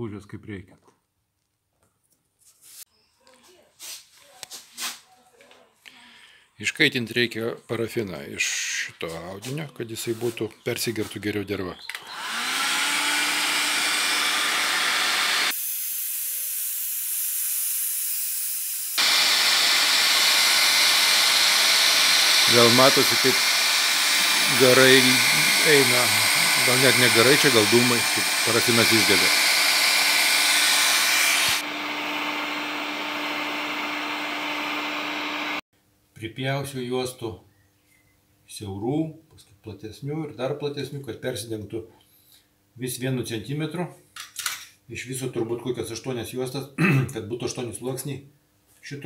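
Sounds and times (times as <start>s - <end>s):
heat gun fan whine: 11.9s - 15.7s, 18.9s - 35.6s
hot air hissing: 18.8s - 31.7s.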